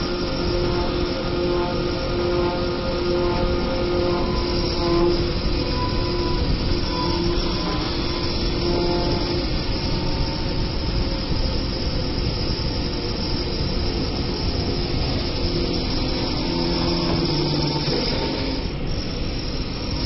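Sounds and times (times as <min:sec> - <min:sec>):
hiss of wood cutting: 0:00.0 - 0:20.0
wood lathe rumbling: 0:00.0 - 0:20.0.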